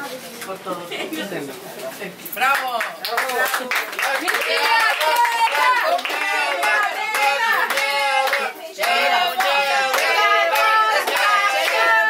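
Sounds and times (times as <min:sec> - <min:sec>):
people clapping in time: 0:02.4 - 0:12.0
group singing: 0:04.2 - 0:12.0.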